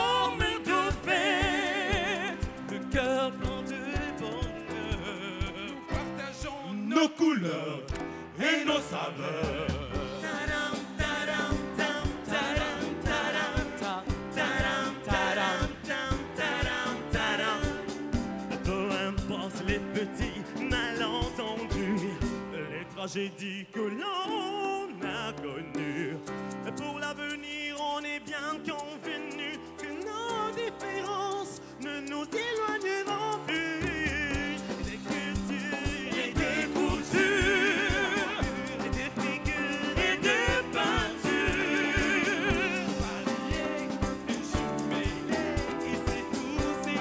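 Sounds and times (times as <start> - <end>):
backing music with drum beat: 0.0 - 6.7, 7.9 - 23.3, 24.1 - 47.0
men singing into microphones: 0.0 - 47.0.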